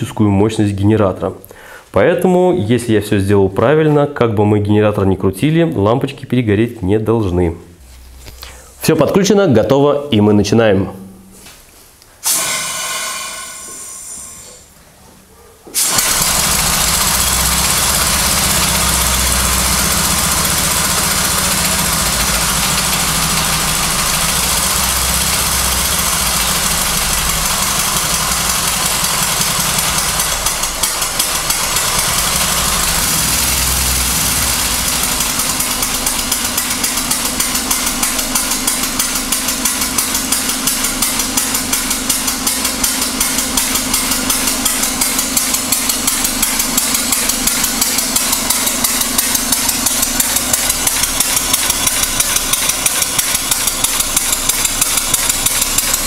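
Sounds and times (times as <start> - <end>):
steam engine hissing: 12.2 - 14.8, 15.8 - 39.2
steady hum with quick beat: 17.2 - 56.0.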